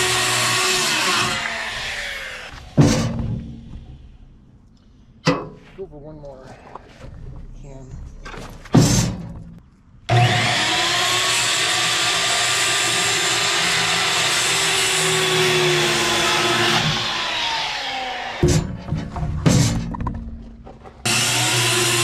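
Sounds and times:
electric power saw whining: 0.0s - 2.8s, 10.1s - 18.7s, 21.0s - 22.0s.

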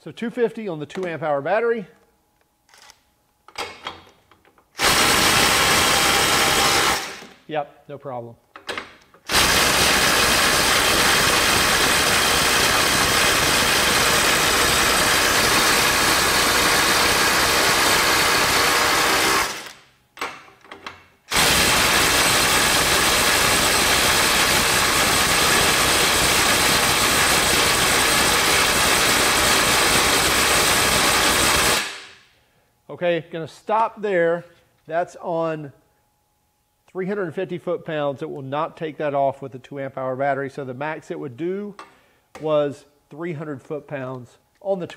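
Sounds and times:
impact driver hammering: 4.8s - 7.4s, 9.3s - 20.5s, 21.3s - 32.1s.

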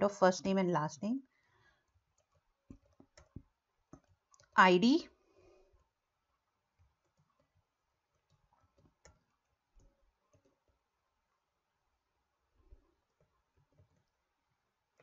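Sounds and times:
computer mouse and keyboard clicks: 1.8s - 4.6s, 6.8s - 10.8s, 12.7s - 14.2s.

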